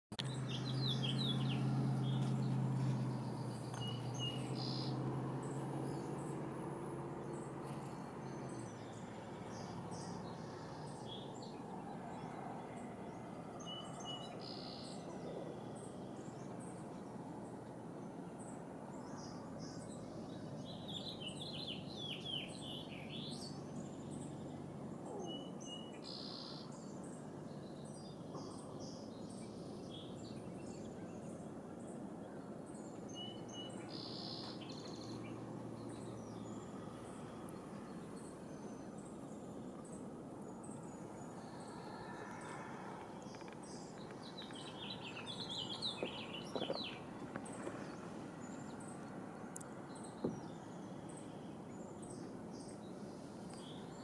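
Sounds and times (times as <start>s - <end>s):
bird chirps and calls: 41.5s - 49.1s.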